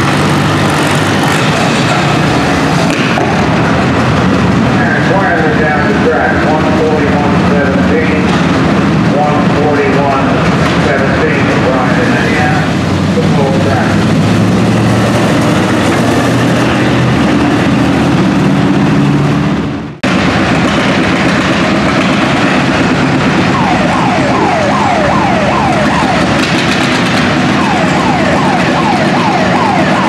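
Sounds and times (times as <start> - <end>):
tractor engine running hard: 0.0 - 30.0.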